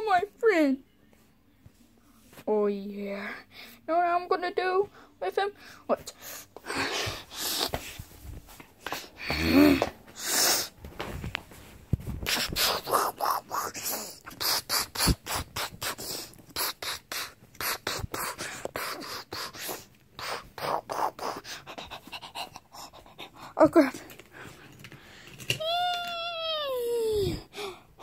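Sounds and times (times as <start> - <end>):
plush toys scuffling on microphone: 6.9 - 9.0, 9.8 - 12.8.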